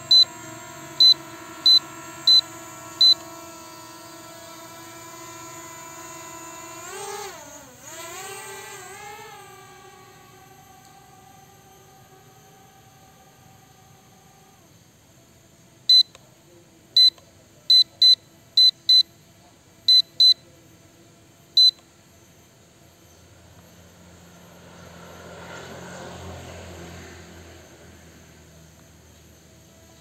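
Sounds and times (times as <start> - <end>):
short high electronic beeps: 1.0 - 3.2, 19.9 - 20.4.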